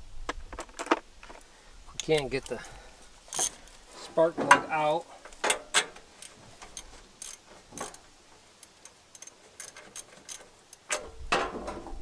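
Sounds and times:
wrench clicking on metal: 0:05.4 - 0:08.0, 0:08.6 - 0:11.1.

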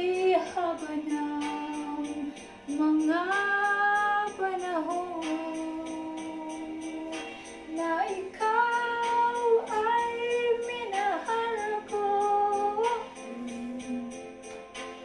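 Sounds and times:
backing track with light percussion: 0:00.0 - 0:15.0
woman humming melody: 0:12.8 - 0:14.6.

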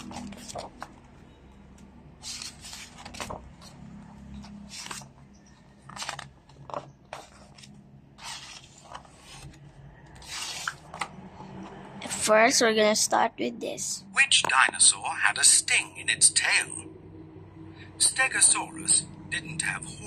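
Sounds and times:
book pages turning: 0:00.0 - 0:01.2, 0:02.2 - 0:11.8.

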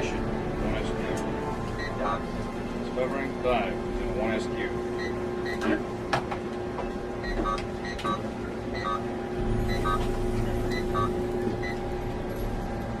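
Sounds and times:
electrical hum: 0:00.0 - 0:13.0
low rumble: 0:09.1 - 0:13.0
short high electronic beeps: 0:09.6 - 0:10.1.

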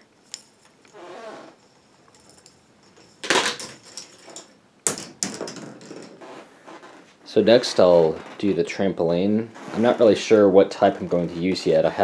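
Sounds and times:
ball rolling down plastic track: 0:03.2 - 0:07.0.

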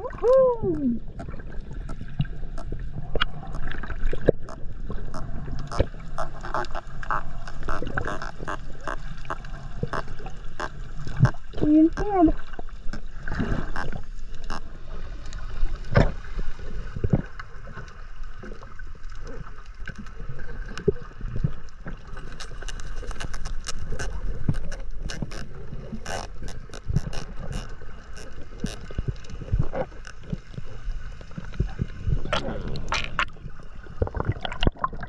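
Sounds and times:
underwater rumble: 0:00.0 - 0:35.0
sharp clicks and crackles: 0:17.0 - 0:30.6.

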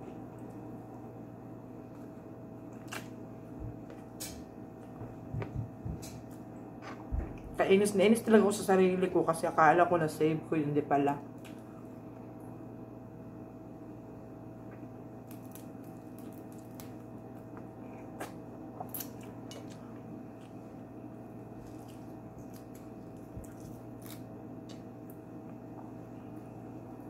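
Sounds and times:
wet squishing and chewing: 0:02.7 - 0:03.2, 0:14.7 - 0:20.7, 0:21.3 - 0:26.4
shrimp shell cracking: 0:15.2 - 0:17.0, 0:21.7 - 0:24.8.

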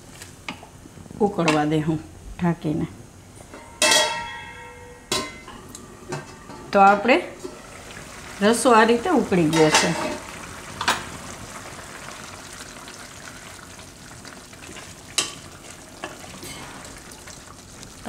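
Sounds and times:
gravy bubbling at a boil: 0:07.5 - 0:18.0.

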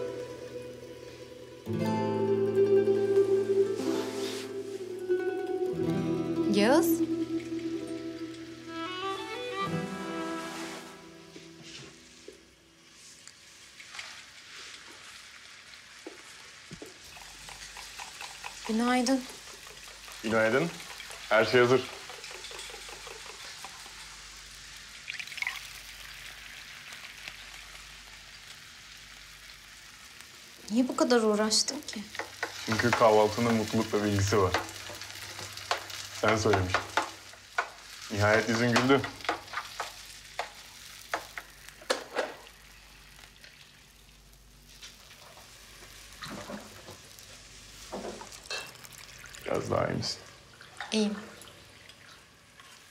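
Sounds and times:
food sizzling in a frying pan: 0:00.0 - 0:52.9
utensils and dishes clinking: 0:17.1 - 0:24.0
kitchenware clattering: 0:17.4 - 0:23.9, 0:32.2 - 0:42.4.

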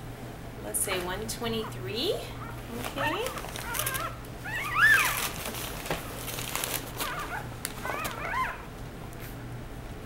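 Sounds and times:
puppy crying: 0:01.6 - 0:05.4, 0:06.7 - 0:08.7
rustling: 0:02.4 - 0:09.4.

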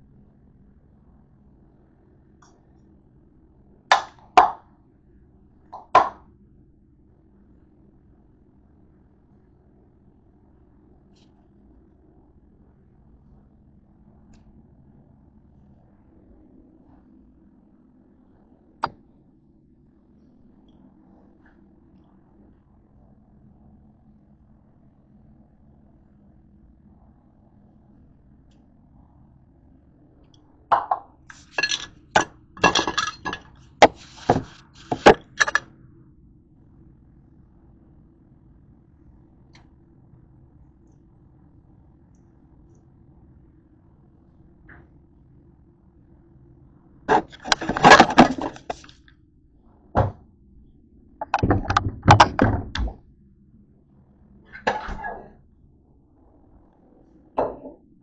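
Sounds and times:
hard items knocking: 0:05.8 - 0:06.2, 0:30.7 - 0:35.6, 0:47.1 - 0:48.9, 0:51.2 - 0:52.8
dishes and utensils clinking: 0:30.8 - 0:35.6, 0:47.1 - 0:48.9
kitchen items clattering: 0:30.8 - 0:35.6, 0:47.1 - 0:48.9.

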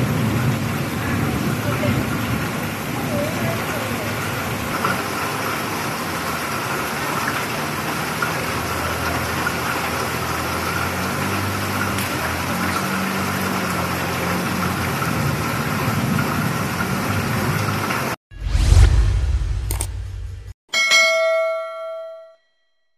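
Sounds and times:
heavy rain on flooded street: 0:00.0 - 0:18.2.

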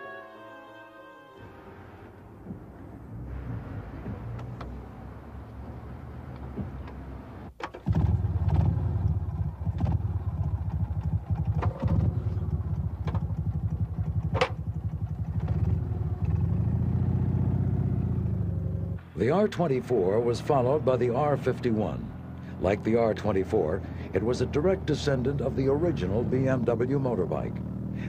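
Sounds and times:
motorcycle engine kick-started: 0:06.5 - 0:17.8.

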